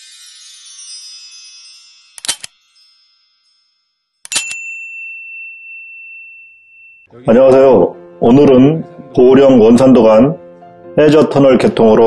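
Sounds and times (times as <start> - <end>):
shimmering chime: 0.0 - 7.3
high ringing tone: 2.7 - 7.1.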